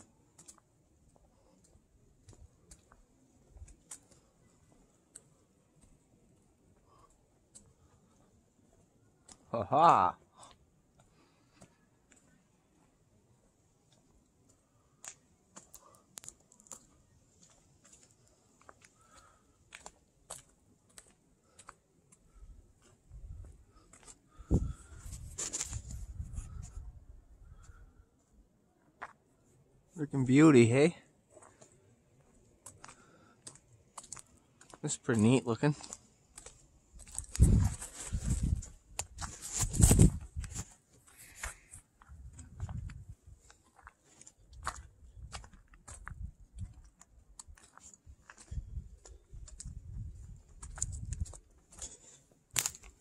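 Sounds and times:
faint irregular crunches and clicks: 1.4 - 4.3, 13.9 - 26.8, 32.6 - 53.0
microphone handling thumps and rustle: 37.3 - 40.7.

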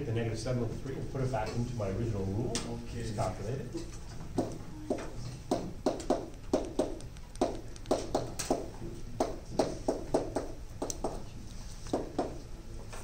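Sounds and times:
sharp taps writing on board: 4.3 - 11.2, 11.8 - 12.4.

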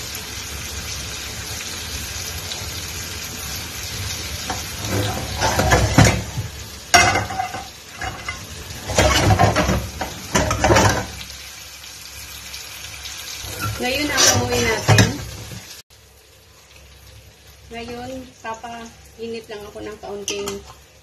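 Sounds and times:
chicken sizzling in frying pan: 0.0 - 21.0
pan rattling on grate: 4.8 - 6.4, 7.0 - 11.2.

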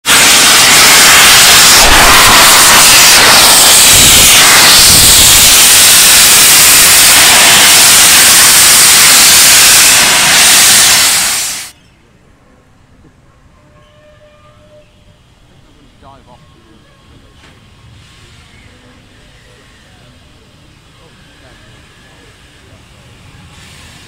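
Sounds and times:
steam hissing loudly: 0.0 - 11.8, 17.8 - 24.0.

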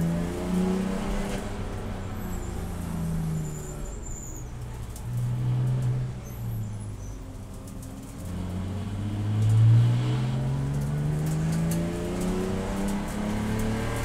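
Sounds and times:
race car engine accelerating: 8.5 - 14.0.

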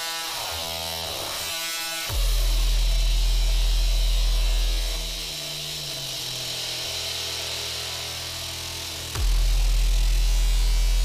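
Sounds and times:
sustained sub-bass tone: 2.1 - 6.0, 6.8 - 11.0
synth drone: 2.1 - 11.0.

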